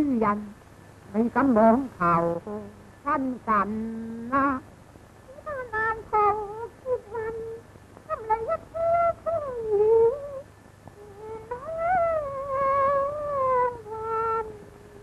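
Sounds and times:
opera singing with vibrato: 5.3s - 15.0s.

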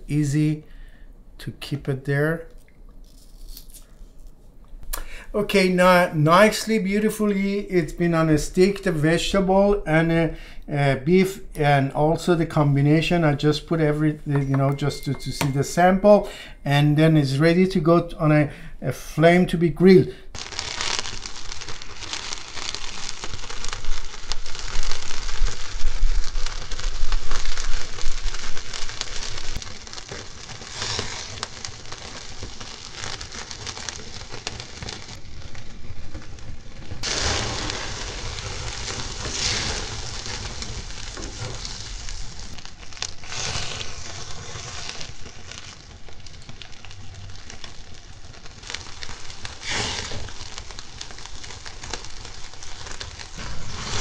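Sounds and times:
kebabs sizzling over grill flames: 19.8s - 54.0s.

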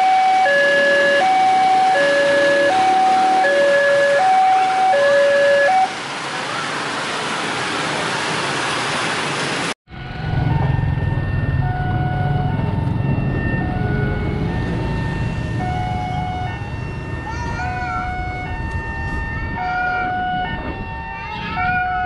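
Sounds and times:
level-crossing alarm tones: 0.0s - 6.0s, 9.9s - 22.0s
road traffic noise: 0.0s - 22.0s
motorbike: 9.9s - 18.9s.

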